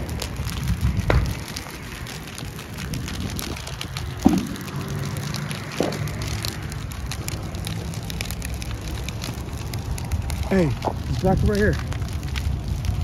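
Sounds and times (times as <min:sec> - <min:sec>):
fire crackling: 0:00.0 - 0:13.0
low steady rumble: 0:00.0 - 0:13.0
sharp pops: 0:00.5 - 0:01.6, 0:03.4 - 0:07.2.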